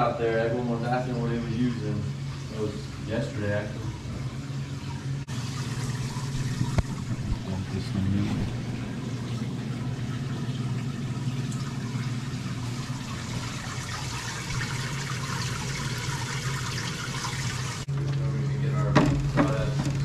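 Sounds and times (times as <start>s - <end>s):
steady low hum: 0.0s - 20.0s
water trickling and splashing: 0.8s - 17.9s
bubbles rising: 3.9s - 17.9s.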